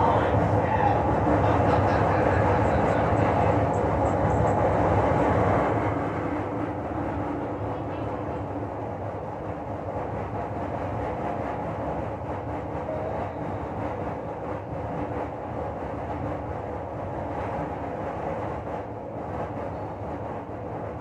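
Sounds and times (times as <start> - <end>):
electric fan whirring: 0.0 - 21.0.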